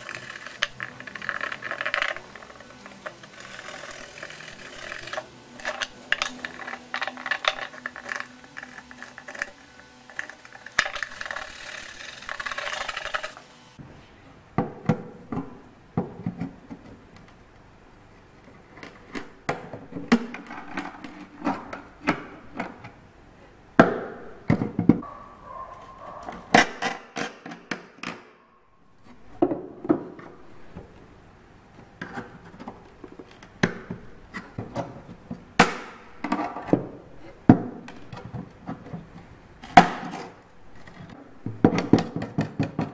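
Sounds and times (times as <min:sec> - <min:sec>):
dense rattling noise: 0:00.0 - 0:13.4.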